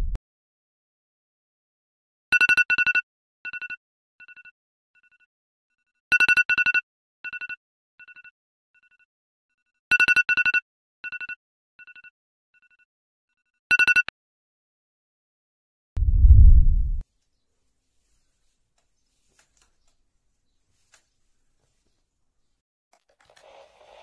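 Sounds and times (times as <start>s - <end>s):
phone alarm beeping: 13.7s - 14.1s.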